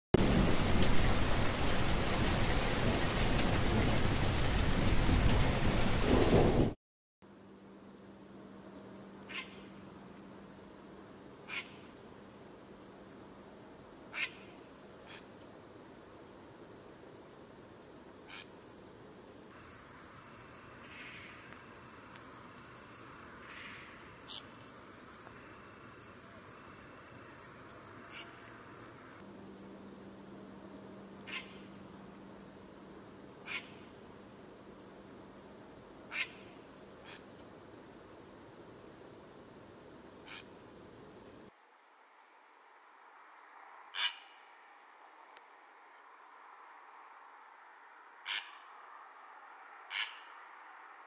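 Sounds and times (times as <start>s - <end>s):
raindrop hits: 0.2s - 6.8s
steady rain falling: 0.2s - 43.5s
insect trilling: 19.6s - 29.2s
short faint calls: 20.6s - 29.2s.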